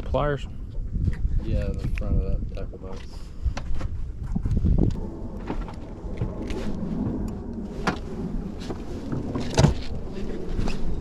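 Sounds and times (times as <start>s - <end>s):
wind rumble on microphone: 0.0s - 11.0s.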